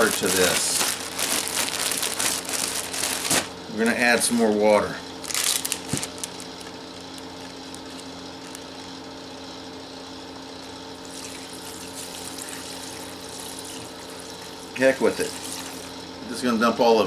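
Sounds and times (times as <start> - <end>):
plastic bag crinkling: 0.0 - 3.6, 5.2 - 8.8, 15.0 - 16.0
faint steady hum: 0.0 - 17.0
water pouring into bag: 11.1 - 15.9.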